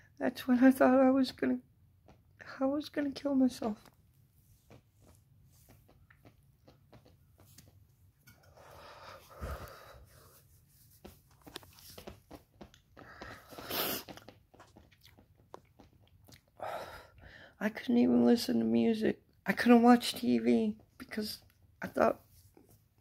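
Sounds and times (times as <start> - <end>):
man breathing: 8.6 - 10.4
clicks and rustles of handling: 10.8 - 13.4.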